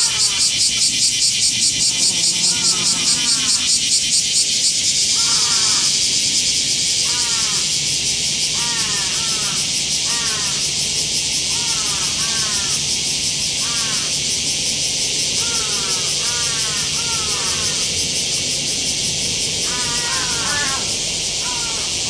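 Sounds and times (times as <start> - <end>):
crow cawing: 0.0 - 0.6, 2.2 - 3.8, 5.1 - 6.0, 7.0 - 7.8, 8.5 - 10.8, 11.5 - 12.9, 13.6 - 14.2, 15.4 - 18.0, 19.6 - 22.0
high drone of insects: 0.0 - 22.0.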